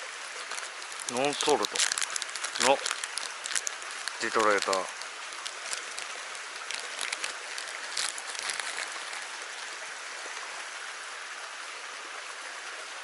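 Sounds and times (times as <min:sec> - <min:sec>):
stream running over rocks: 0:00.0 - 0:13.0
plastic packaging crinkling: 0:00.1 - 0:09.8.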